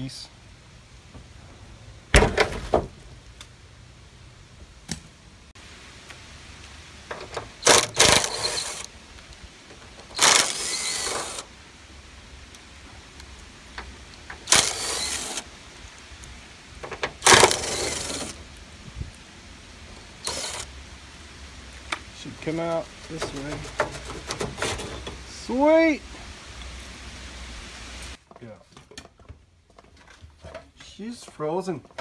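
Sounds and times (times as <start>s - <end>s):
cordless impact driver running: 7.6s - 8.9s, 10.2s - 11.5s, 14.5s - 15.4s, 17.2s - 18.4s, 20.2s - 20.7s.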